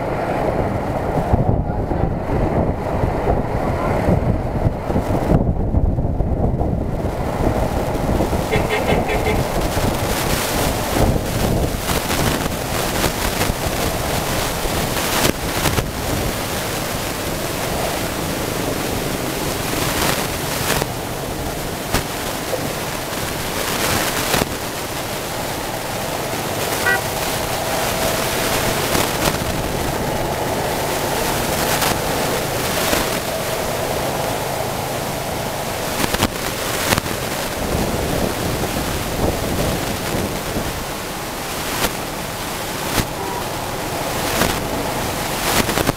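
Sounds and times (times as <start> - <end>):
engine and wind rumble: 0.0 - 45.9
car horns tooting: 8.4 - 9.9, 26.7 - 27.9.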